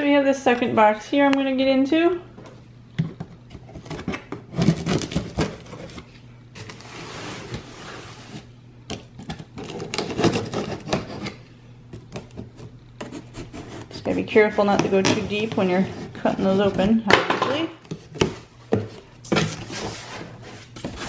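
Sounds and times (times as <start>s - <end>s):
knife cutting packing tape: 3.8s - 6.0s, 9.6s - 11.4s.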